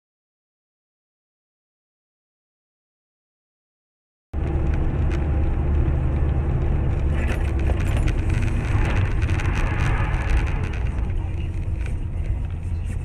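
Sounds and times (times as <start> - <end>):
engine and road noise rumble: 4.4 - 13.0
small clicks and rattles: 4.4 - 13.0.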